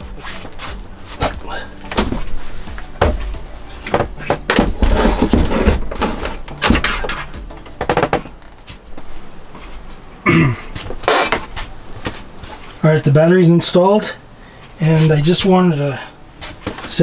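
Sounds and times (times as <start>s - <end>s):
battery and cables knocking and rattling: 3.0s - 8.6s.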